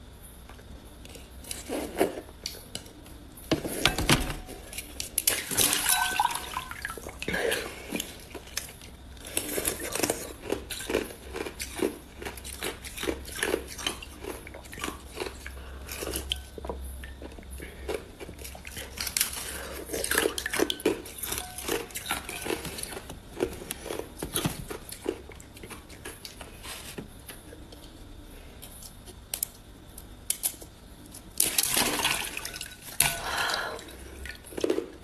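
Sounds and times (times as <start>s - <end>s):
chewing crunchy ice: 8.0s - 26.6s.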